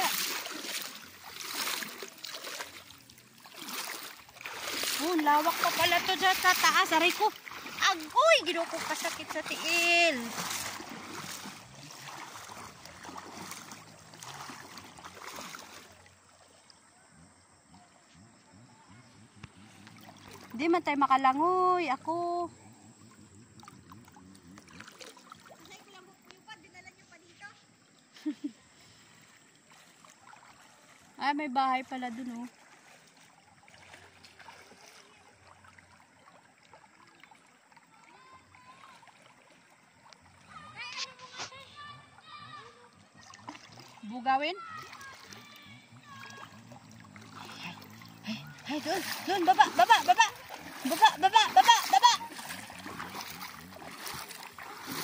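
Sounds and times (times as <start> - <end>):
river water splashing and trickling: 0.0 - 55.0.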